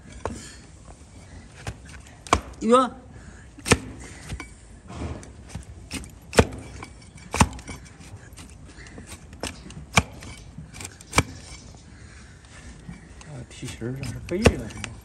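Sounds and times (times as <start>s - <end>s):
blade cracking through hoof: 3.6s - 4.1s, 5.5s - 11.6s, 13.6s - 15.0s.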